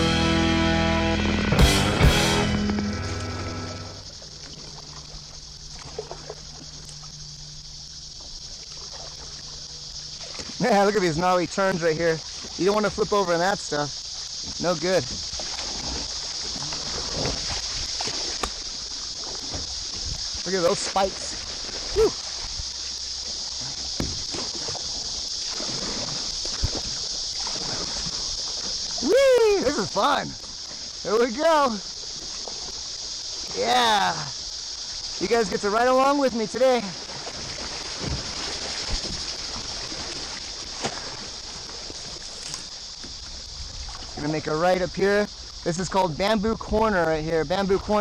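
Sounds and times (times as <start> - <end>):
river water rushing: 0.0 - 42.9
light water splashes: 2.5 - 48.0
paddle knocks: 24.0 - 24.8.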